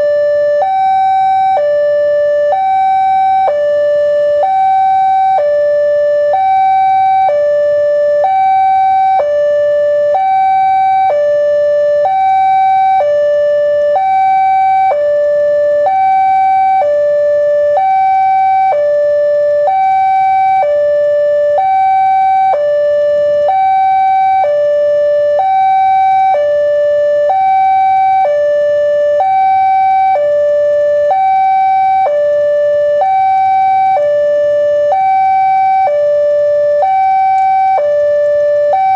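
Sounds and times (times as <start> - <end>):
two-tone level crossing alarm: 0.0 - 38.9.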